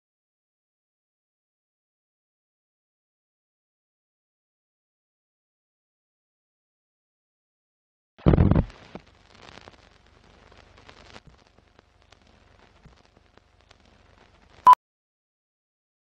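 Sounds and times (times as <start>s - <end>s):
film crackle and pops: 8.2s - 14.7s.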